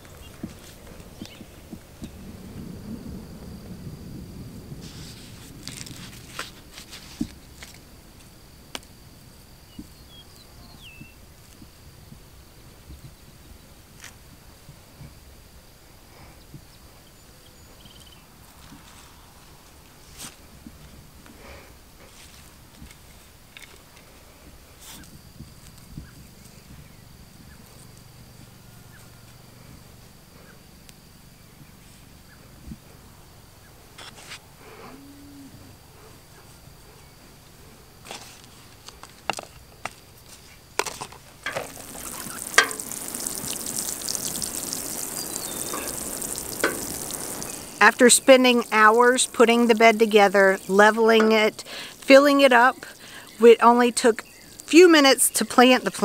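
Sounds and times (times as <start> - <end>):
hands rustling potting soil: 0.0 - 2.1, 4.8 - 8.9, 38.0 - 56.0
faint chirps: 9.7 - 11.2, 16.4 - 18.3, 41.7 - 48.9
high-pitched insect drone: 41.5 - 53.5.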